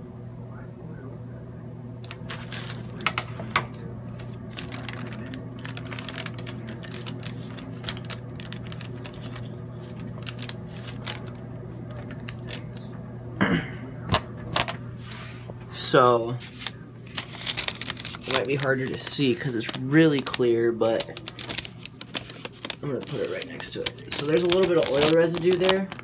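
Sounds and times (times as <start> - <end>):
steady low hum: 0.0 - 26.0
crackling and clicking in a press: 2.0 - 13.0, 16.6 - 26.0.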